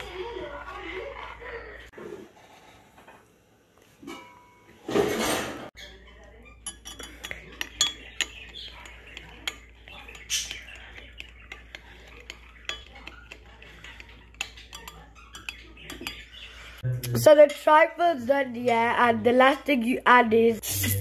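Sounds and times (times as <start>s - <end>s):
spoon clinking and scraping glass: 5.8s - 16.5s.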